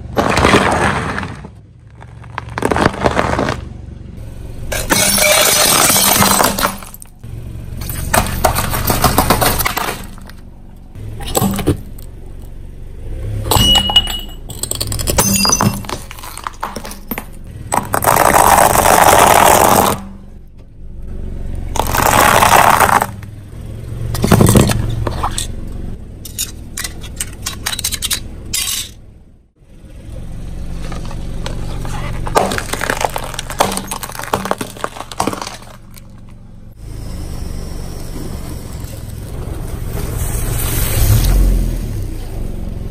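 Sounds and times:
tyre crushing objects: 0:00.0 - 0:03.8, 0:07.8 - 0:10.4, 0:14.6 - 0:20.2, 0:21.8 - 0:23.3, 0:32.2 - 0:36.2
sharp cracks: 0:00.1 - 0:03.8, 0:21.8 - 0:23.3, 0:32.2 - 0:36.3
dry pasta crunching and snapping: 0:01.9 - 0:03.6, 0:32.4 - 0:36.0.

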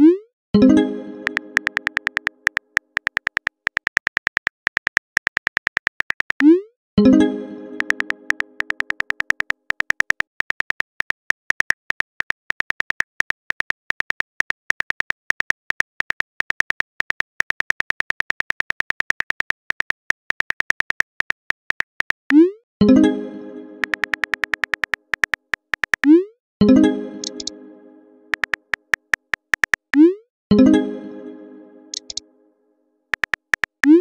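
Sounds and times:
phone keyboard clicks: 0:01.2 - 0:06.5, 0:07.8 - 0:22.3, 0:23.8 - 0:26.1, 0:27.2 - 0:27.5, 0:28.3 - 0:30.0, 0:31.9 - 0:32.2, 0:33.1 - 0:34.0
chime-like message tone: 0:07.0 - 0:08.6, 0:30.5 - 0:32.5.

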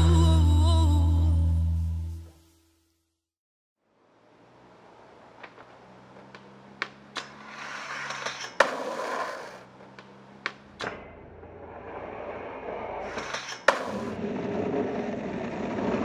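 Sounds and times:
skateboard wheels rolling on pavement: 0:03.9 - 0:16.0
skateboard clacks: 0:05.4 - 0:16.0.

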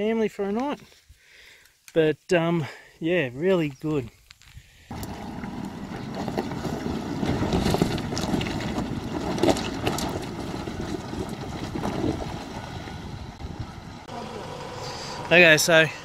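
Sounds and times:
tyres crunching over gravel: 0:03.6 - 0:16.0
engine pulling uphill: 0:04.9 - 0:16.0.

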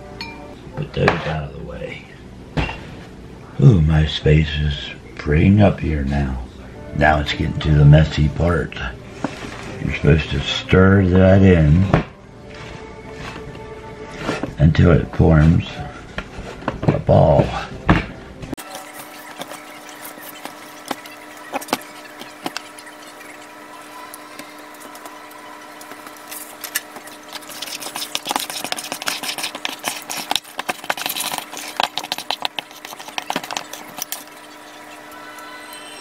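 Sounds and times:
metal spoon scraping in metal bowl: 0:25.9 - 0:35.8.

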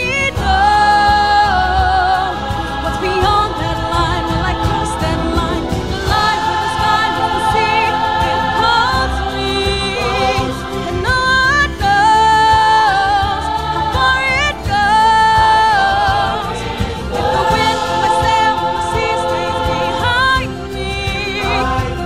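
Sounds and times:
mixed choir singing: 0:00.0 - 0:22.0.

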